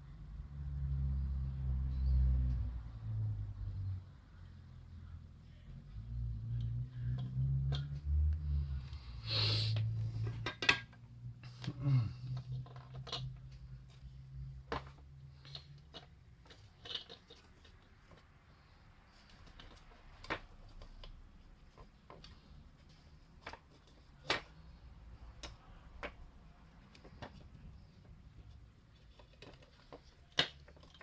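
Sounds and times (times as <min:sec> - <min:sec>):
plastic parts clicking and knocking: 0:09.8 - 0:18.3, 0:19.1 - 0:31.0.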